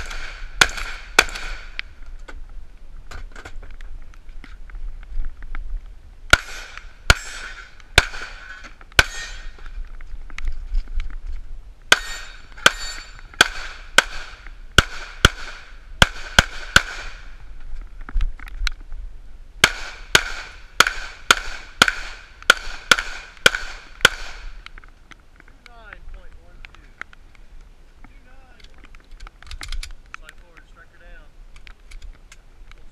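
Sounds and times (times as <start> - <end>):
pistol shots: 0.0 - 1.8, 6.3 - 9.5, 11.9 - 17.3, 19.6 - 24.6.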